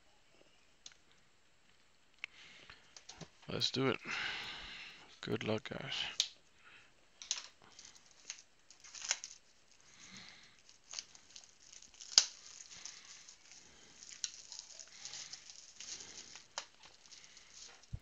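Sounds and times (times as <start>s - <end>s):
plastic shrink wrap crinkling: 7.1s - 18.0s.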